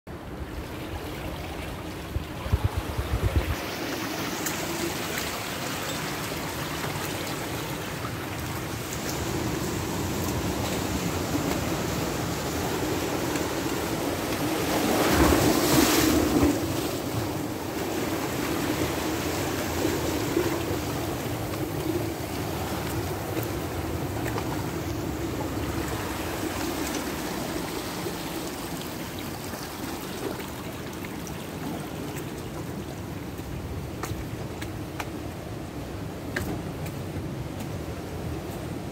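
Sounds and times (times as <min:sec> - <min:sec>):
wind on microphone: 0:00.4 - 0:05.2.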